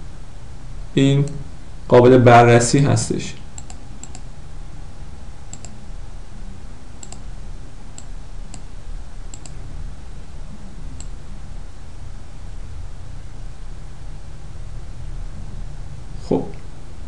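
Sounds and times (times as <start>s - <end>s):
steady low hum: 0.0s - 17.0s
mouse buttons clicking: 3.6s - 4.2s, 5.5s - 5.8s, 7.0s - 7.2s, 9.3s - 9.6s.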